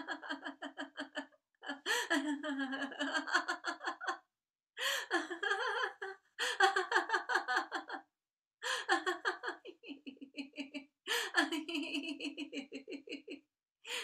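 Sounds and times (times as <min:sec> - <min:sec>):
woman laughing: 0:00.0 - 0:04.2, 0:04.8 - 0:08.0, 0:08.6 - 0:14.0.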